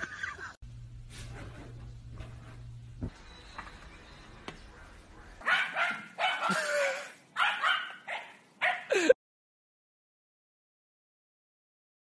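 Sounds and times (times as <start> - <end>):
dog barking: 4.7 - 6.7, 7.4 - 8.9.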